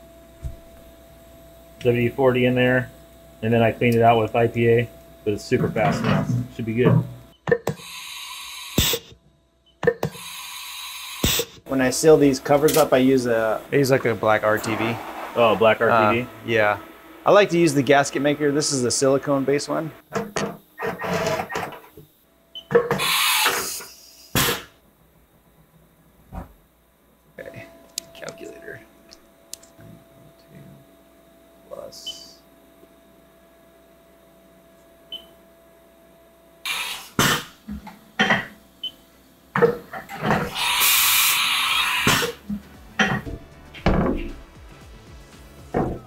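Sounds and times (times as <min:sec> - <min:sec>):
air hiss: 0:07.8 - 0:09.1, 0:10.1 - 0:11.6, 0:12.4 - 0:18.7, 0:23.0 - 0:24.8, 0:36.7 - 0:37.5, 0:40.5 - 0:42.5
rush of noise: 0:13.6 - 0:17.8
machine mechanical knocks and clunks: 0:42.5 - 0:44.6, 0:45.7 - 0:46.0.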